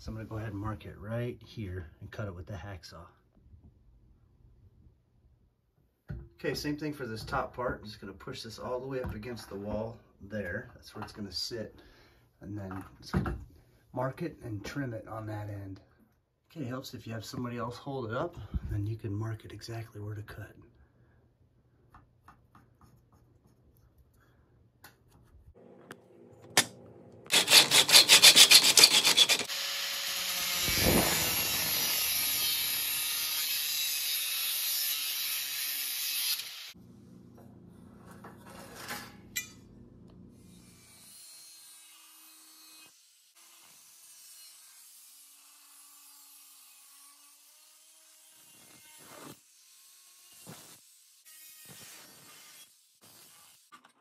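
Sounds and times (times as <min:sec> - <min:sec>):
angle grinder cutting metal: 0:27.3 - 0:36.8.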